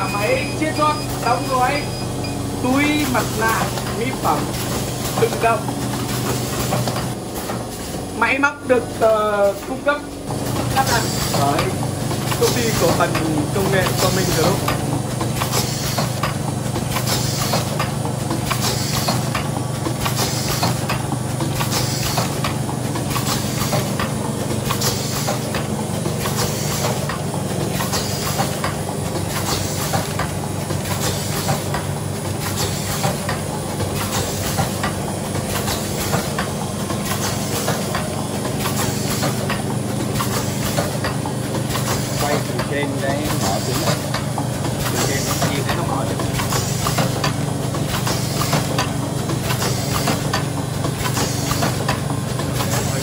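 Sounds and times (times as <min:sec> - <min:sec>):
machine hum: 0:00.0 - 0:53.0
pneumatic gripper clicks: 0:46.4 - 0:52.0
bursts of air hiss: 0:51.1 - 0:51.8.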